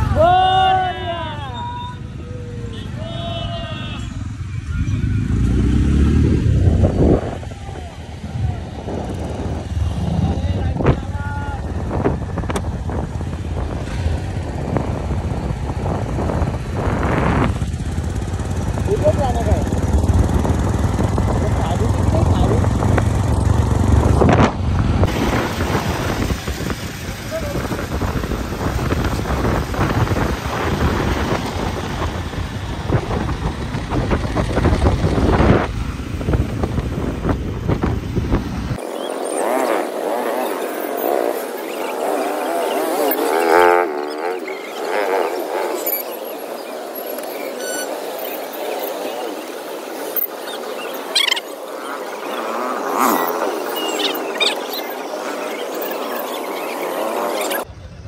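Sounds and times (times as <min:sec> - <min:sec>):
motorcycle engine rumble: 0:00.0 - 0:58.0
wind buffeting microphone: 0:06.1 - 0:39.1.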